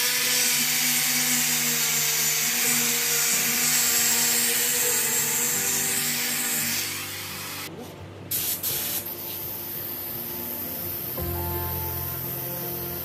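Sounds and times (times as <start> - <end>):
angle grinder motor whine: 0.0 - 7.7
sanding disc hissing on wood: 0.0 - 7.7.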